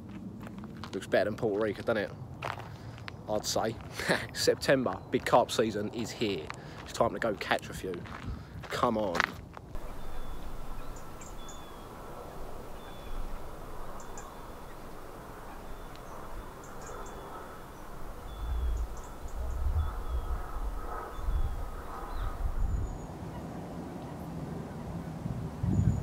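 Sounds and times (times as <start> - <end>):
birds chirping: 8.8 - 25.0
low rumble: 9.7 - 23.1.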